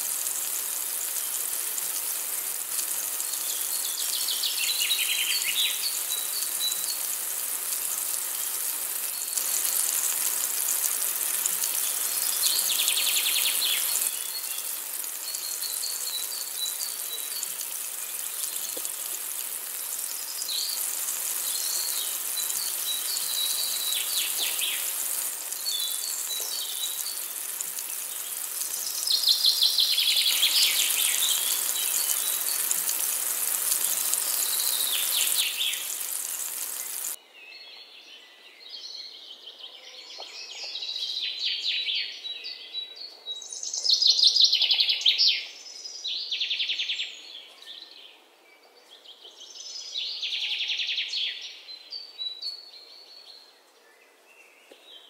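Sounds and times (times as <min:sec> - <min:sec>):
steady high hiss: 0:00.0 - 0:37.2
birds singing trills: 0:03.2 - 0:07.2, 0:11.7 - 0:19.0, 0:19.8 - 0:32.8.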